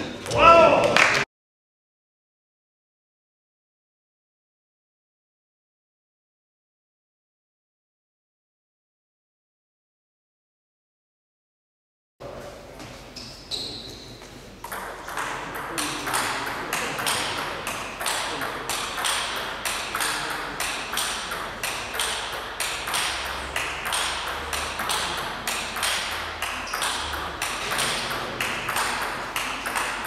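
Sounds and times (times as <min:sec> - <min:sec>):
table tennis rally: 0:00.0 - 0:01.3, 0:12.2 - 0:30.0.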